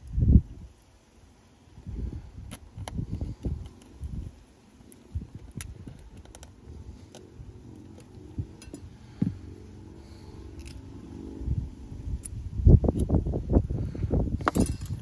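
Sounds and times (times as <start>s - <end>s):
low rumble of handling: 1.6s - 15.0s
small tools clicking and tapping: 2.5s - 4.2s, 4.9s - 9.3s.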